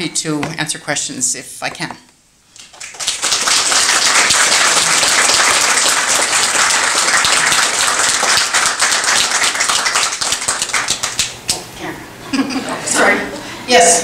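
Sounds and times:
audience clapping: 0:02.6 - 0:11.6.

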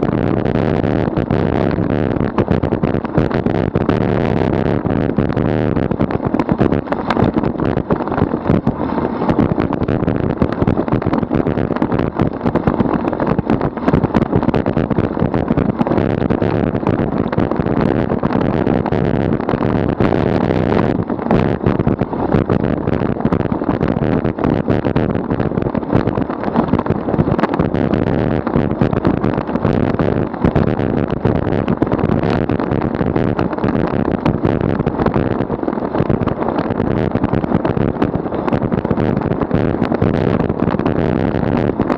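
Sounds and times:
bicycle tyres rumbling on asphalt: 0:00.0 - 0:41.9
wind rushing over microphone: 0:00.0 - 0:41.9.

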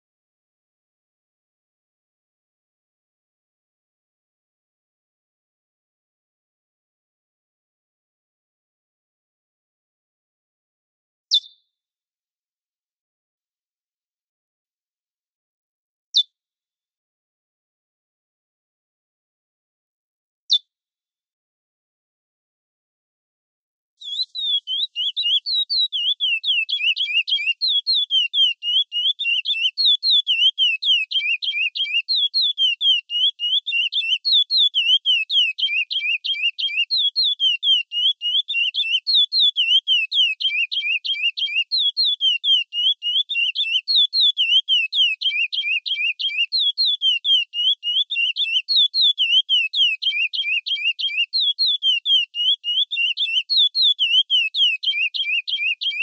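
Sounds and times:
finch singing whistled notes: 0:11.3 - 0:11.6, 0:24.0 - 0:56.0.

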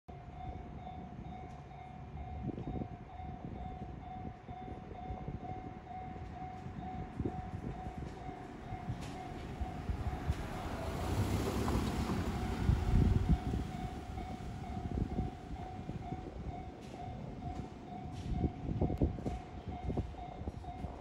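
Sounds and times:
low rumble: 0:07.3 - 0:16.6.

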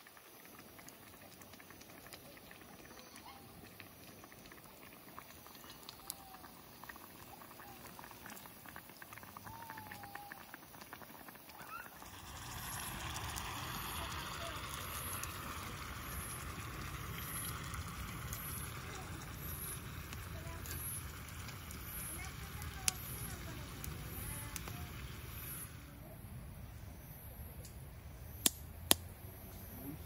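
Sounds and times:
fire pops and crackles: 0:00.0 - 0:25.8, 0:27.6 - 0:29.2
broth bubbling in a skillet: 0:00.0 - 0:30.0
short squeaky whistles: 0:11.6 - 0:12.0
hissing rush: 0:12.0 - 0:25.9.

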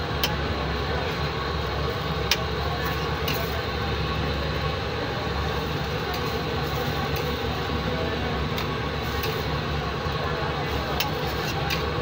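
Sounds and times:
metal spatula scraping griddle: 0:11.0 - 0:11.9.

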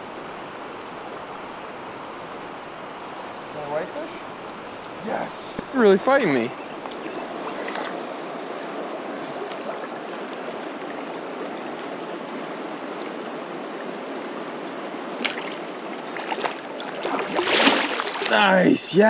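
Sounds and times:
river rushing over rocks: 0:00.0 - 0:08.1
fish splashing at surface: 0:16.2 - 0:18.3.

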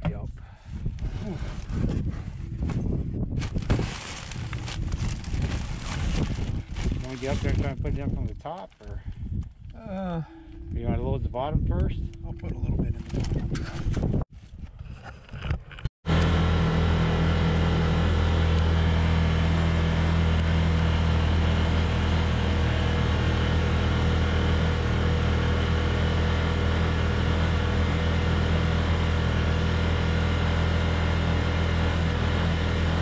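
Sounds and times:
road and wind noise: 0:00.1 - 0:08.4
utility vehicle engine running: 0:16.1 - 0:33.0.

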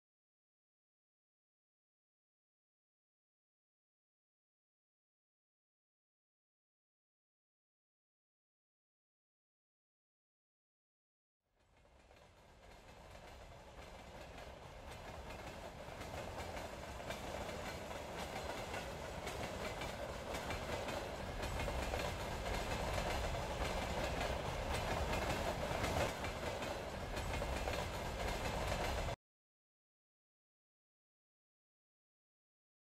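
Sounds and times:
train running on rails: 0:11.6 - 0:29.2.

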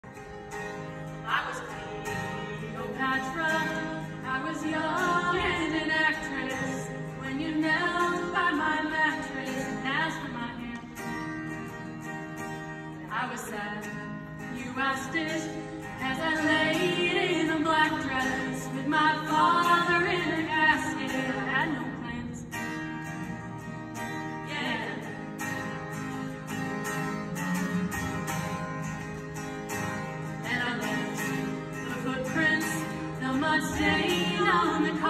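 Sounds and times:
acoustic guitar: 0:00.0 - 0:35.0
women singing: 0:01.2 - 0:11.1, 0:13.0 - 0:22.7, 0:24.4 - 0:25.4, 0:30.4 - 0:35.0.

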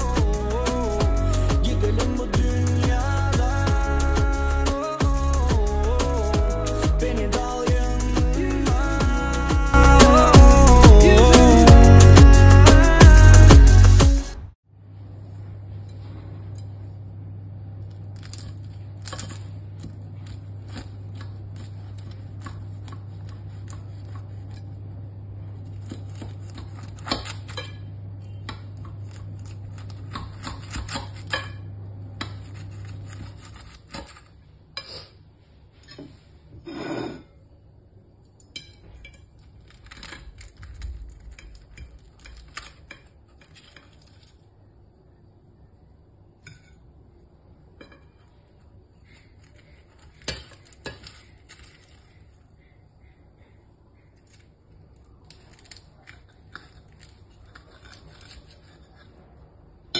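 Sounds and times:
knife cutting crisp pastry: 0:17.8 - 0:31.6, 0:32.2 - 0:35.2, 0:49.0 - 0:52.3, 0:55.0 - 0:59.5.

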